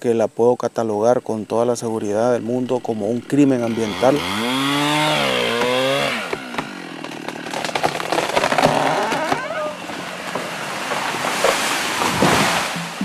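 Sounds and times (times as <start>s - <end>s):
chainsaw cutting wood: 2.1s - 12.8s
wood cracking: 2.6s - 12.6s
tree falling rush: 2.9s - 12.8s.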